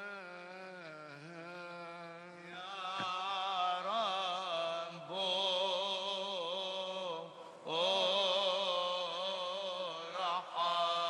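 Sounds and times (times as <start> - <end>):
men chanting slow melody: 0.0 - 11.0.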